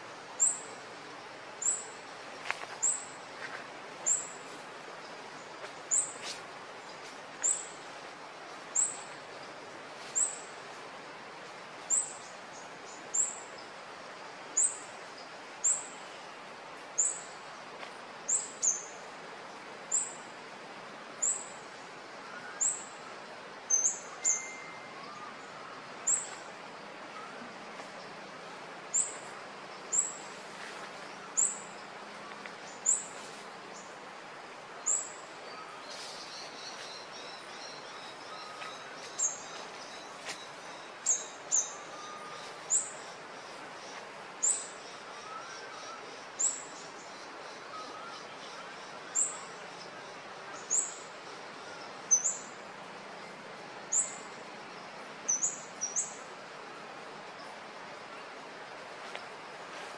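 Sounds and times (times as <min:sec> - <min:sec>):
outdoor background hiss: 0:00.0 - 0:59.9
bird chirping: 0:23.7 - 0:26.4.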